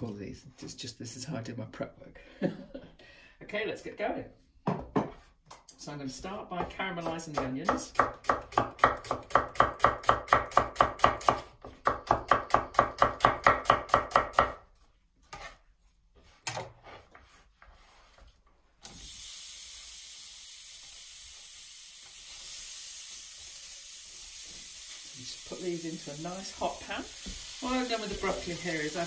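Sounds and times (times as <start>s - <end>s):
knock: 4.6s - 5.2s
knife chopping on wooden board: 6.6s - 14.6s
onions sizzling in a pan: 18.8s - 29.0s.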